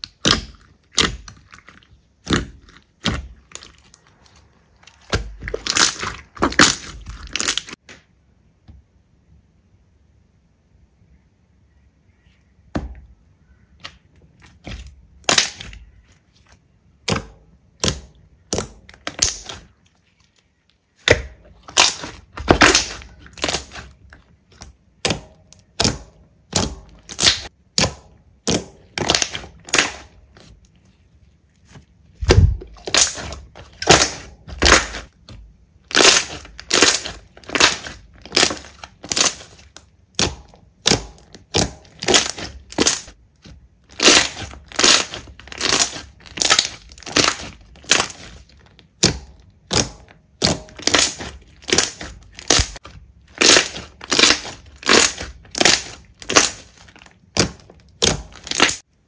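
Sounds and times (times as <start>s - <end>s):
slime popping and squelching: 0.0s - 7.8s, 13.8s - 19.8s, 20.9s - 30.8s, 31.6s - 58.9s.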